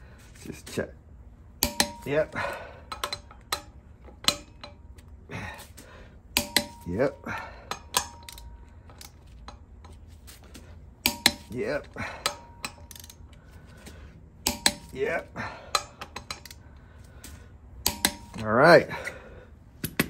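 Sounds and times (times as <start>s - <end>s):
torque wrench clicking: 12.2s - 13.3s.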